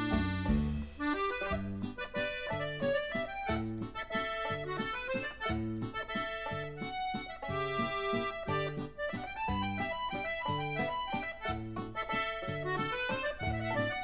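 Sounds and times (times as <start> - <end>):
accordion tune: 0.0 - 14.0
bass notes and chords beat: 0.0 - 14.0.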